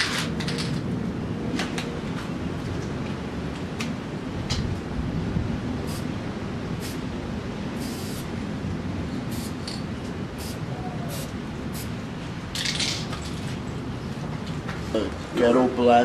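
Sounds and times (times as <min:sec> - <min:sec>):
spray can hissing: 0:05.9 - 0:06.1, 0:06.8 - 0:07.0, 0:07.8 - 0:08.3, 0:09.3 - 0:09.7, 0:10.4 - 0:11.9.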